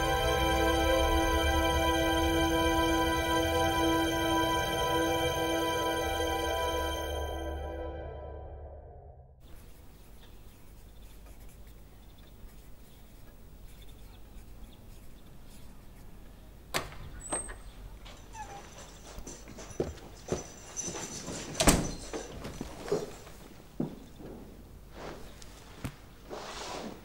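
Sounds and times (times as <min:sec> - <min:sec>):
door opening: 0:16.7 - 0:23.1
brief squeak: 0:18.3 - 0:18.9
scuffing footsteps: 0:18.6 - 0:26.1.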